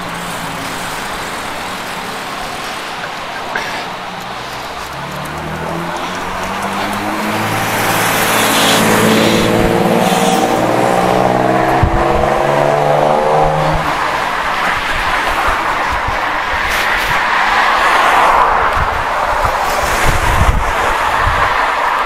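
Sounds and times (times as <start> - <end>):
bus engine running: 0.0 - 12.3
wind and road noise: 0.0 - 22.0.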